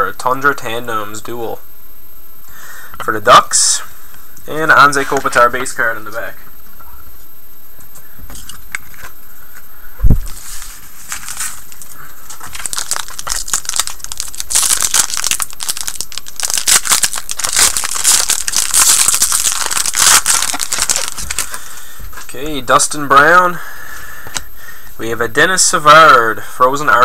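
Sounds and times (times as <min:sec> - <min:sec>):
foil wrapper tearing and crinkling: 0:10.3 - 0:21.7.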